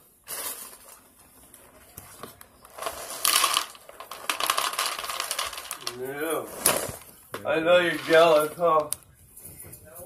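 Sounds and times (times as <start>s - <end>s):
cereal pouring into plastic bowl: 2.8s - 6.0s.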